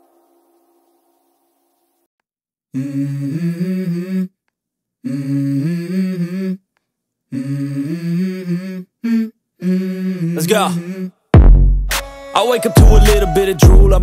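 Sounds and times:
hummed vocal harmony: 2.7s - 4.4s, 5.0s - 6.7s, 7.3s - 11.2s.

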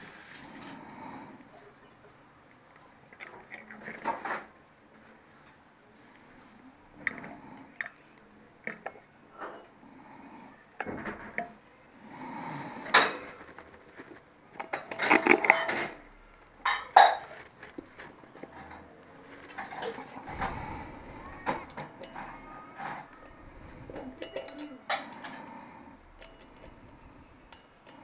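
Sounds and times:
steel bowl and tools clinking: 12.8s - 28.0s.

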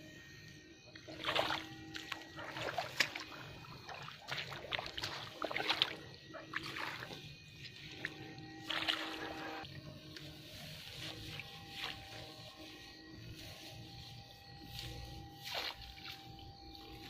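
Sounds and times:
splashing of wading in water: 1.0s - 9.6s, 15.4s - 16.8s.

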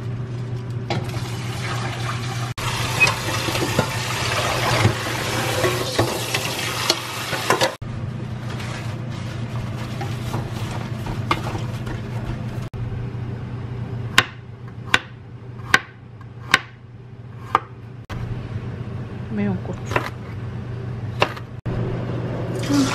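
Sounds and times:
tap water running: 0.9s - 7.8s, 22.5s - 22.9s
paper towels rustling: 8.2s - 12.7s
knife chopping on cutting board: 14.1s - 16.8s, 17.4s - 17.8s, 21.2s - 21.5s.

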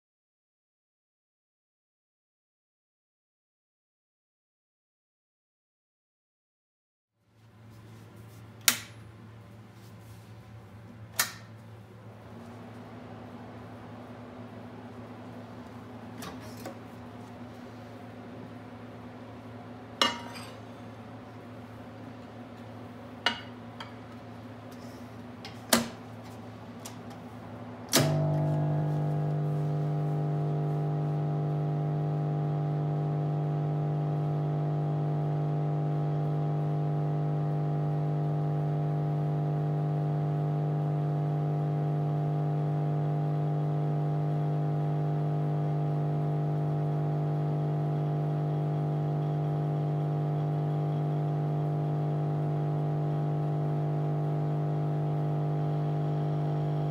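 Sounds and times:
microwave oven mains hum: 7.2s - 56.9s
oven switch click: 8.6s - 9.0s, 11.1s - 11.5s, 27.9s - 28.5s
glass clinking: 20.0s - 20.6s.

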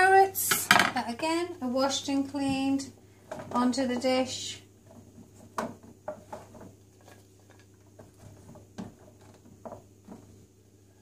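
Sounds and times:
carrots knocking in roasting tray: 3.3s - 10.4s.

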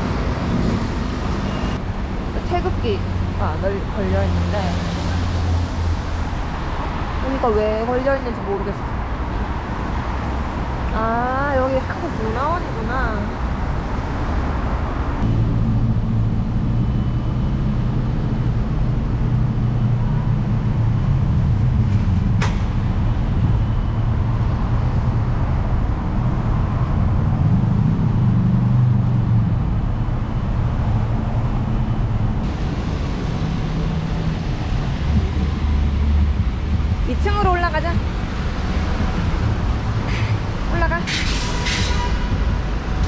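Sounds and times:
vehicle engine hum: 0.0s - 43.0s.

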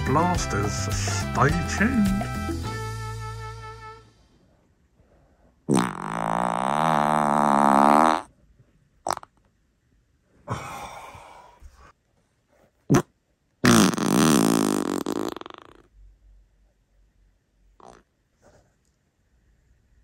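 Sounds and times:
person farting: 5.7s - 8.3s, 9.0s - 9.4s, 12.9s - 15.9s, 17.8s - 18.1s.

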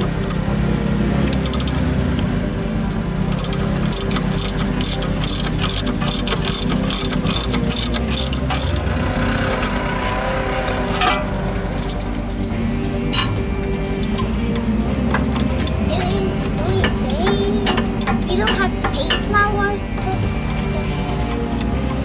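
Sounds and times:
low hum: 0.0s - 22.0s
ratchet wrench clicking: 1.3s - 2.2s, 3.3s - 12.4s, 16.8s - 19.4s.

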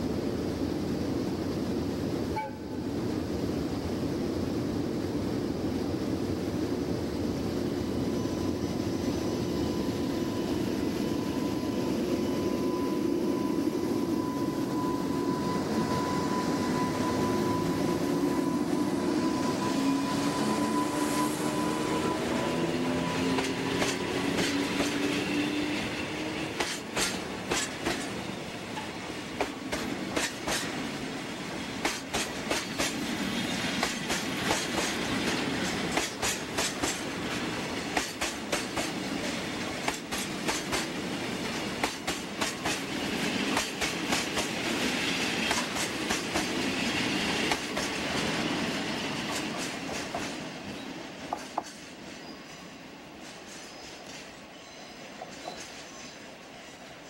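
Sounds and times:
locomotive humming: 0.0s - 57.0s
train wheels clacking over rail joints: 23.2s - 30.9s, 31.6s - 50.5s, 51.3s - 52.0s.

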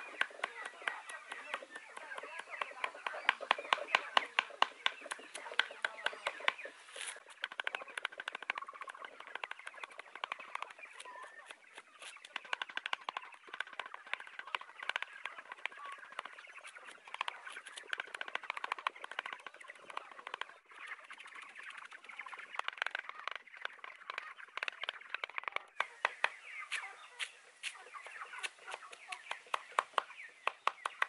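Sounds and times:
knife chopping greens on wood: 0.0s - 9.6s, 10.2s - 16.3s, 17.2s - 19.3s
birds chirping: 0.0s - 31.0s.

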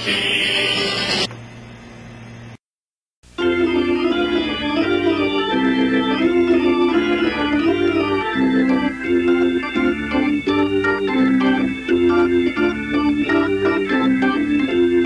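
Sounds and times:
organ music: 3.3s - 15.0s.

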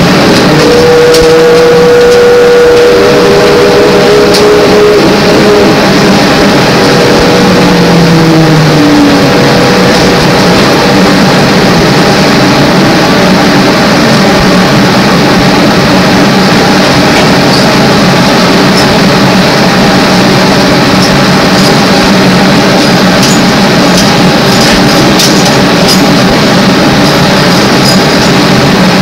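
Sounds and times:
electric motor hum tones: 0.0s - 17.1s.

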